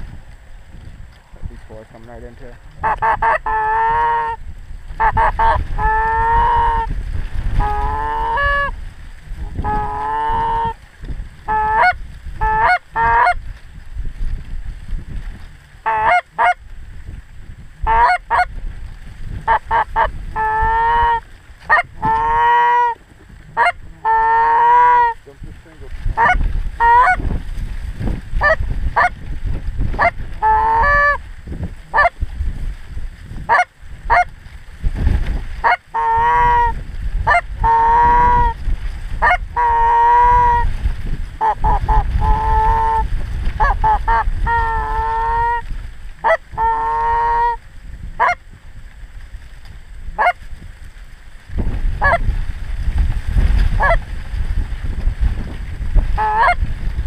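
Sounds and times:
low steady rumble: 0:00.0 - 0:57.0
geese honking: 0:02.7 - 0:04.4, 0:05.0 - 0:06.9, 0:07.6 - 0:08.8, 0:09.4 - 0:10.8, 0:11.5 - 0:13.4, 0:15.8 - 0:16.6, 0:17.8 - 0:18.5, 0:19.4 - 0:25.2, 0:26.2 - 0:27.2, 0:28.4 - 0:29.2, 0:30.0 - 0:31.2, 0:31.9 - 0:32.2, 0:33.5 - 0:34.3, 0:35.6 - 0:38.6, 0:39.2 - 0:40.7, 0:41.4 - 0:45.6, 0:46.2 - 0:47.6, 0:48.2 - 0:48.4, 0:50.2 - 0:50.4, 0:52.0 - 0:52.2, 0:53.8 - 0:54.0, 0:56.2 - 0:56.6.

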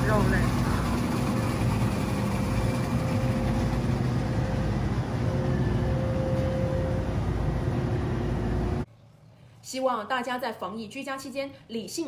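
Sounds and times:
refrigeration and air handling hum: 0:00.0 - 0:09.3.

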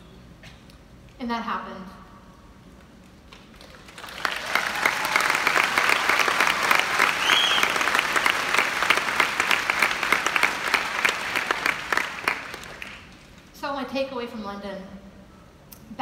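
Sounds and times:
large audience applauding: 0:03.3 - 0:13.4.

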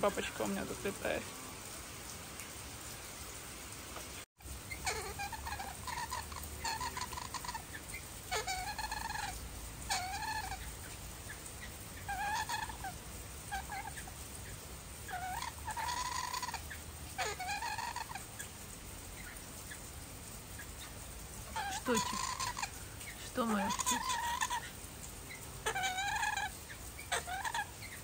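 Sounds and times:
bird squawking: 0:04.7 - 0:10.7, 0:12.0 - 0:14.1, 0:15.1 - 0:18.3, 0:21.5 - 0:24.7, 0:25.6 - 0:28.0.

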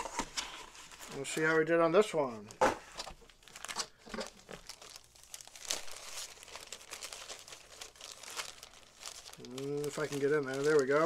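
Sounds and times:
packaging crinkling: 0:02.4 - 0:11.0.

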